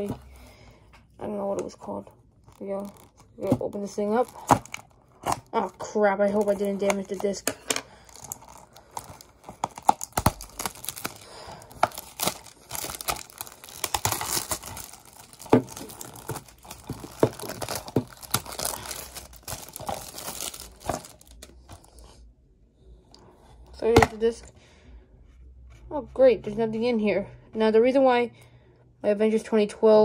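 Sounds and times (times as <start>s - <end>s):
plastic shrink wrap crinkling: 2.4s - 22.0s.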